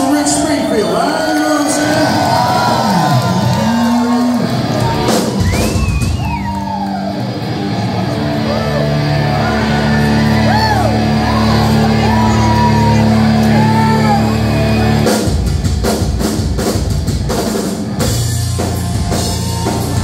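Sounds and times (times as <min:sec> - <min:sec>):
crowd shouting: 0:00.0 - 0:15.1, 0:18.6 - 0:20.0
live rock band: 0:00.0 - 0:20.0
electric guitar notes gliding: 0:06.9 - 0:15.2.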